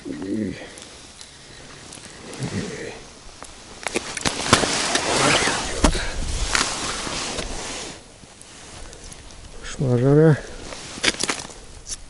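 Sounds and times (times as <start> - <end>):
clothing and glove handling noise: 0.8 - 9.4, 10.5 - 11.6.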